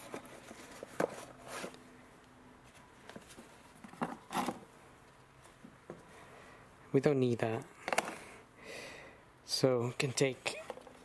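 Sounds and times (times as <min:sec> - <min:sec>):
cardboard box rustling: 0:00.0 - 0:01.8.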